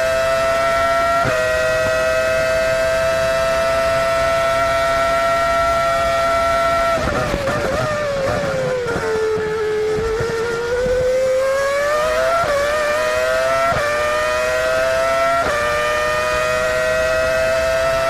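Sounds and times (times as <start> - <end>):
quick gear downshifts: 0.0 - 18.0
racing car engine revving: 0.0 - 18.0
sharp gear upshifts: 6.4 - 18.0.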